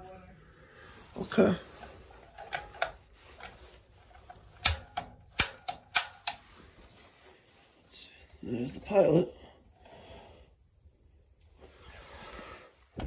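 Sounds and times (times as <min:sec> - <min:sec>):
gas valve clicks: 0:04.6 - 0:06.4.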